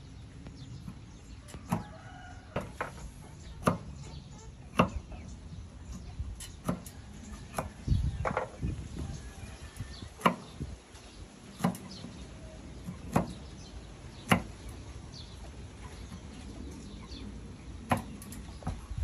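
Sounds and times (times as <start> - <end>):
knife chopping on wooden board: 4.7 - 5.0.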